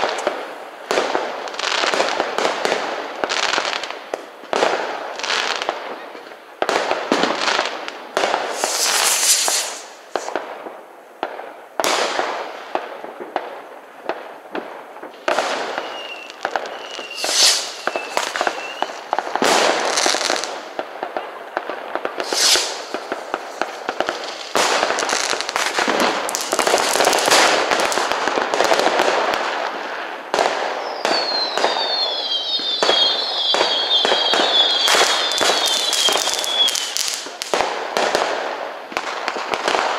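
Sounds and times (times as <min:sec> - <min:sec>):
fireworks bangs and crackling: 0:00.0 - 0:39.9
wavering firework whistle: 0:08.4 - 0:10.4, 0:15.3 - 0:20.6, 0:22.1 - 0:25.7, 0:30.5 - 0:37.4
short falling whistles: 0:15.7 - 0:19.1, 0:30.8 - 0:37.0.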